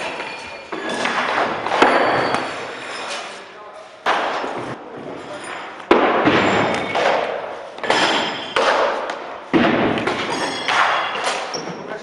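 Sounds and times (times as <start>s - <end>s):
thuds of sparring blows: 5.9s - 11.5s.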